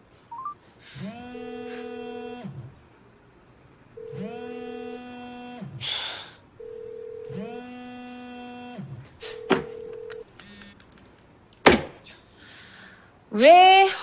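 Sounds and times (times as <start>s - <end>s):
smartphone ringtone: 0.3s - 0.6s, 6.6s - 7.4s.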